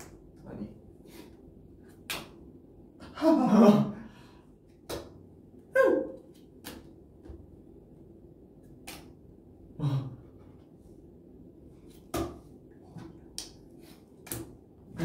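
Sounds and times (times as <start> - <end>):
playing cards slapping on table: 1.9 - 2.5, 4.8 - 5.2, 6.3 - 7.4, 11.9 - 12.5, 13.2 - 14.6.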